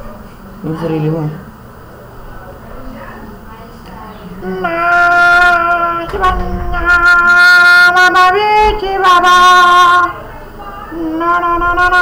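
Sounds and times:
person singing high notes: 4.4s - 10.2s, 10.9s - 12.0s.

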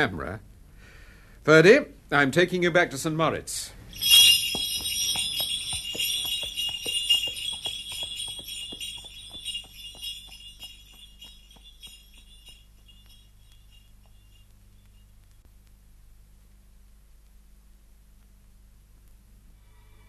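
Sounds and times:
sleigh bells jingling: 3.9s - 14.5s.

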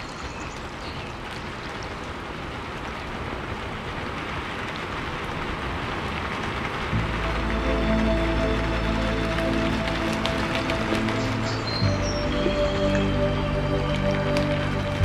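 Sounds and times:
steady rushing noise: 0.7s - 15.0s
music with low drone: 6.9s - 15.0s.

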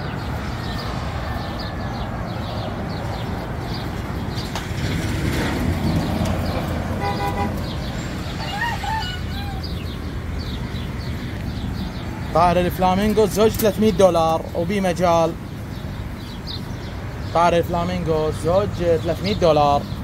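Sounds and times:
street traffic rumble: 0.0s - 20.0s
vehicle horn toots: 7.0s - 7.8s.

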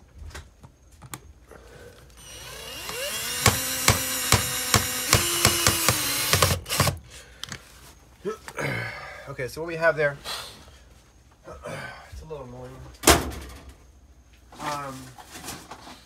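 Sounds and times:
cordless drill motor whining: 2.2s - 7.0s
drill clicking: 2.2s - 7.0s.

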